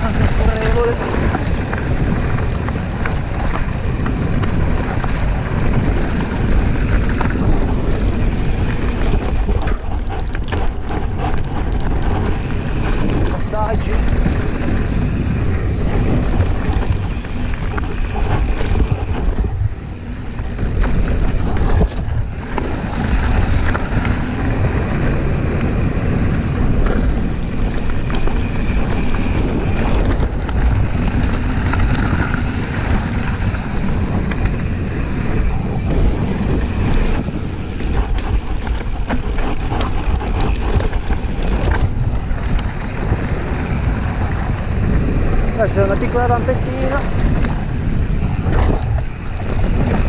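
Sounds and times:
bike rattling and knocking: 0.0 - 50.0
tyres rumbling over dirt: 0.0 - 50.0
wind on microphone: 0.0 - 50.0.

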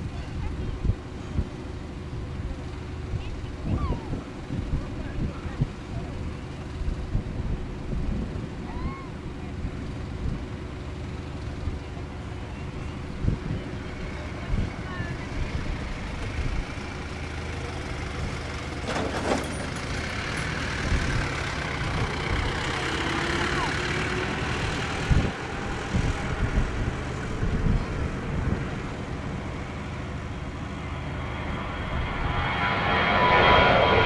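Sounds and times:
jet engines at takeoff thrust: 0.0 - 34.0.

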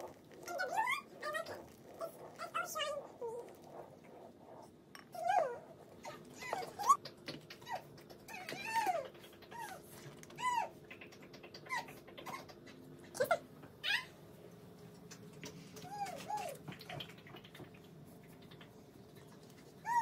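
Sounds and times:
animal whining: 0.0 - 14.1, 19.8 - 20.0
faint steady hum: 0.0 - 20.0.

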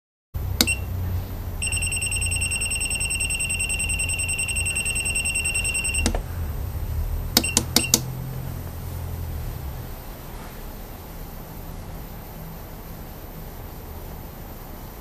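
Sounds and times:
high-pitched buzzer beeps: 1.6 - 6.2, 7.4 - 8.0
button clicks: 6.0 - 6.2, 7.4 - 8.1.

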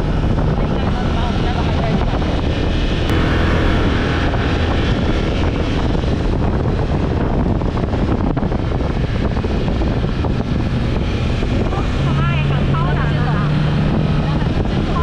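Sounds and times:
utility vehicle engine running: 0.0 - 15.0
wind buffeting microphone: 0.0 - 15.0.

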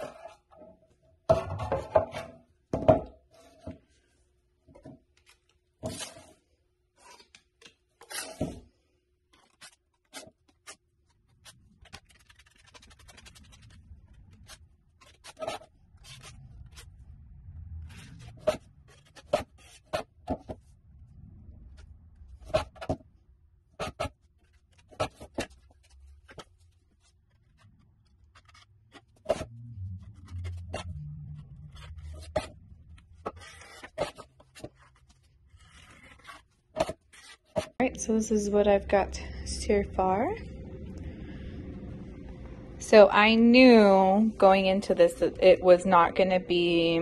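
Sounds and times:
faint low rumble: 15.8 - 19.1, 20.6 - 22.5, 25.8 - 33.6, 37.8 - 47.0.

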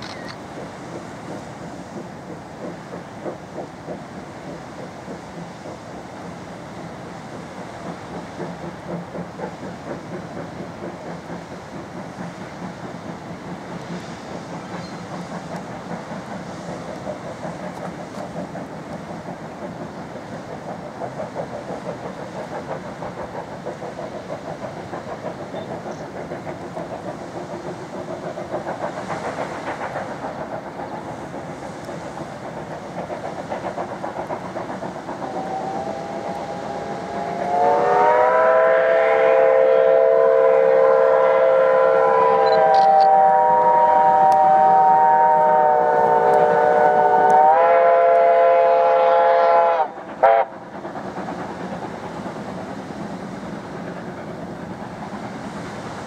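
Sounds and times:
steam train rumbling: 0.0 - 56.0
steam locomotive whistle: 35.2 - 50.5.

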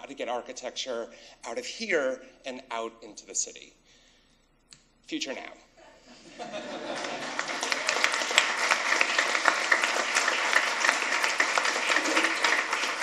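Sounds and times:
audience clapping: 6.8 - 13.0.

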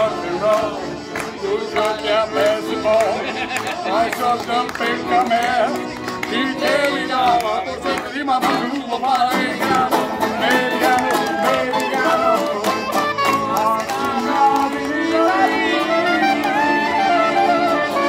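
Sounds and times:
accordion: 0.0 - 18.0
strummed banjo: 0.0 - 18.0
woodwind playing: 10.0 - 18.0.

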